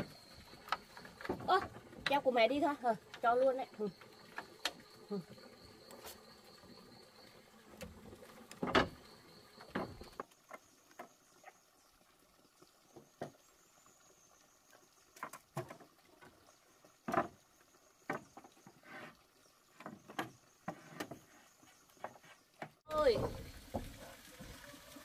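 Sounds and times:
high insect call: 0:00.0 - 0:11.2.

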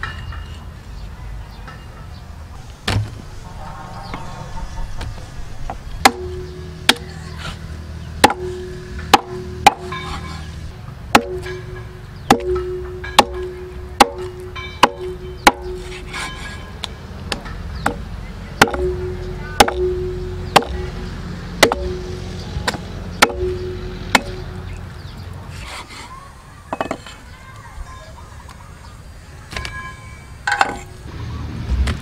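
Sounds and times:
cleaver chopping on wooden board: 0:12.3 - 0:16.3, 0:18.6 - 0:21.0, 0:21.6 - 0:24.4.

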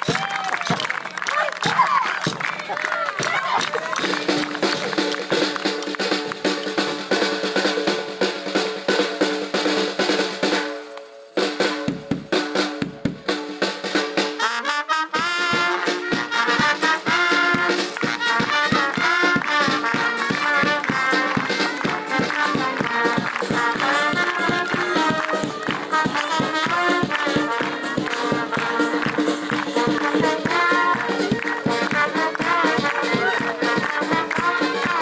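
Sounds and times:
drumming: 0:00.0 - 0:35.0
wavering brass melody: 0:09.2 - 0:35.0
held brass chord: 0:14.0 - 0:35.0.

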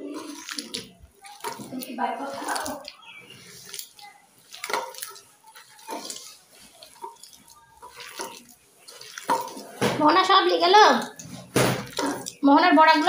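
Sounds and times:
hand squishing wet greens: 0:00.0 - 0:13.0
fingers clinking metal bowl: 0:00.1 - 0:09.6.

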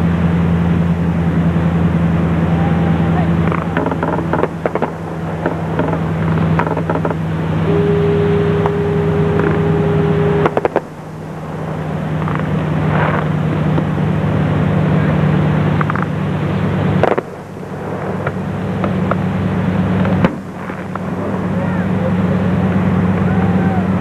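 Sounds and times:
engine idling hum: 0:00.0 - 0:24.0
steady high tone: 0:02.3 - 0:15.6
sharp clicks or knocks: 0:03.5 - 0:07.2.

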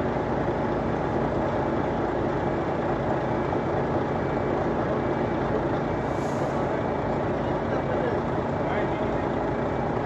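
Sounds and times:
heavy vehicle engine running: 0:00.0 - 0:10.0.

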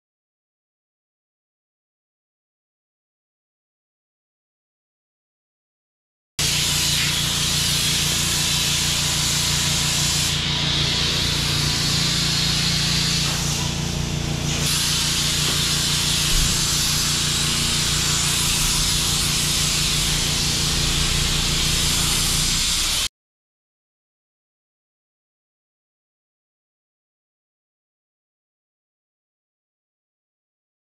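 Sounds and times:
foam spray hissing: 0:06.4 - 0:23.1
constant low hum: 0:15.4 - 0:23.0.

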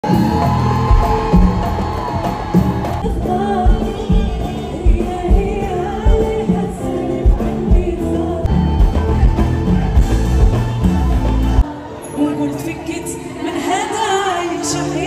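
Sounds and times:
orchestra: 0:00.0 - 0:15.0
woman singing: 0:00.0 - 0:15.0.

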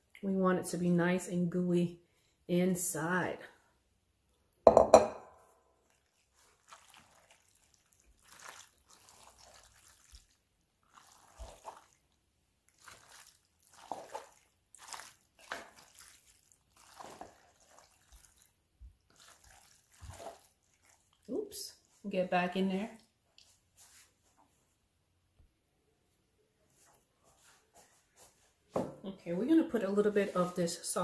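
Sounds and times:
spoon stirring wet pasta: 0:05.8 - 0:22.0.

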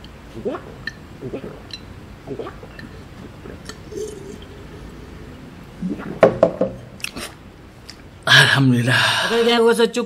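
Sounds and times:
person swallowing: 0:00.4 - 0:07.4.

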